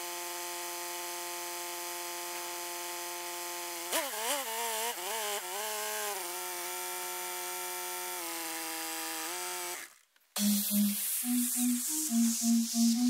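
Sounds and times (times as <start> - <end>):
music: 10.4 - 13.0.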